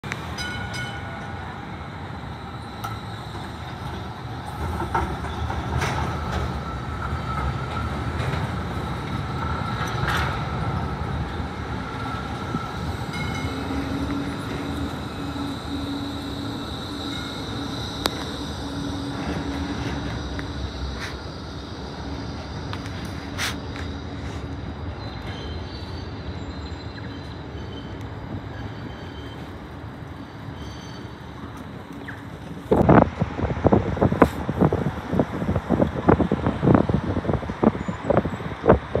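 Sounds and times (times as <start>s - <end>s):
steady low hum of tram: 0.0s - 39.0s
tram wheels rumbling on track: 0.0s - 39.0s
thin high whine: 12.0s - 29.6s.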